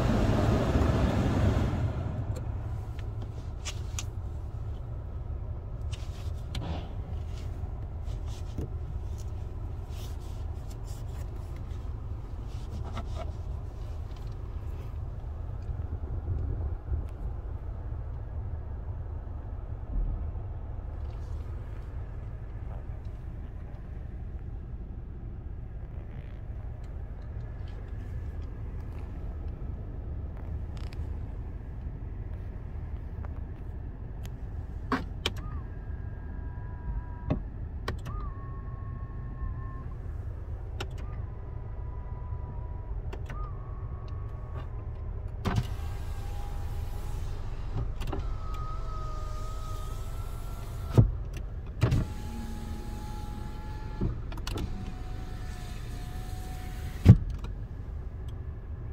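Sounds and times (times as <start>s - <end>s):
window motor running: 51.9s - 57.2s.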